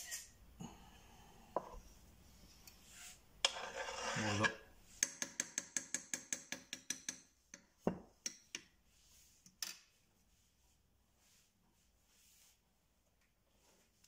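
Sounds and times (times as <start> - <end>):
spatula tapping a pot rim: 5.0 - 8.7.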